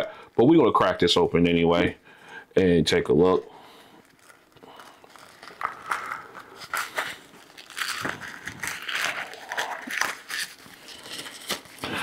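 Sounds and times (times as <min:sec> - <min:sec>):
plastic pouch tearing and crinkling: 0:03.8 - 0:12.0.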